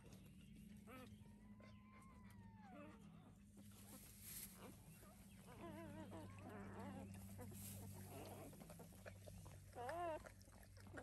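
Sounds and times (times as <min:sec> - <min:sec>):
faint low hum: 0:00.0 - 0:11.0
puppies squeaking and whimpering: 0:05.4 - 0:08.8.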